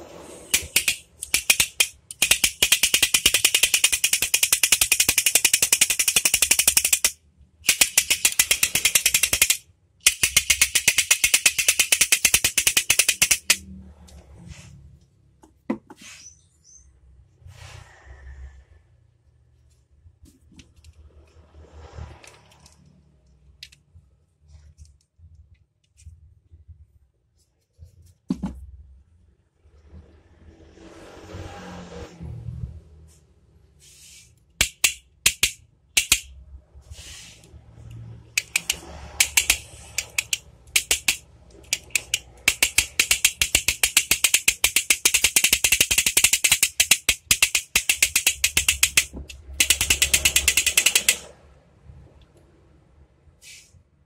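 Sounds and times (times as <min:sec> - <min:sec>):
toy ball clattering on wire: 0:00.5 - 0:13.6, 0:34.6 - 0:36.4, 0:38.4 - 0:51.4.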